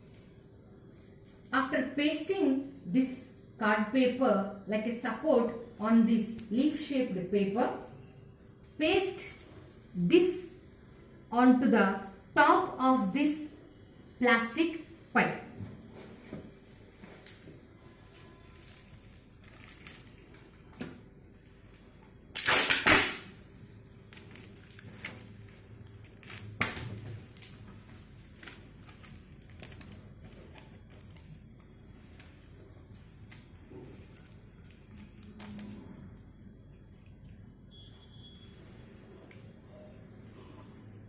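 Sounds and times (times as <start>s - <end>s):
paper and plastic clicks: 24.2s - 33.5s.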